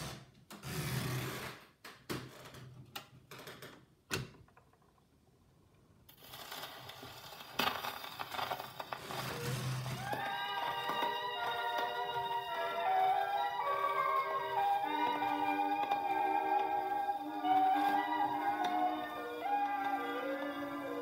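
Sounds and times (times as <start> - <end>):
record clicks and crackle: 6.1 - 13.5
music: 9.4 - 21.0.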